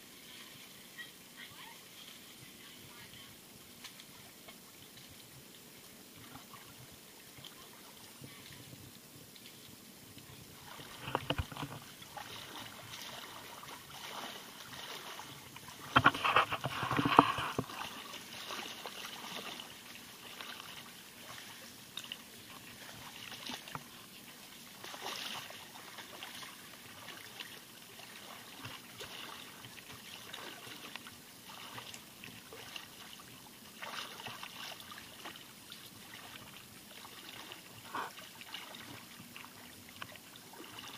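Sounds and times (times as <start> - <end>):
light water trickle: 0.0 - 40.9
person wading through seawater: 10.3 - 40.9.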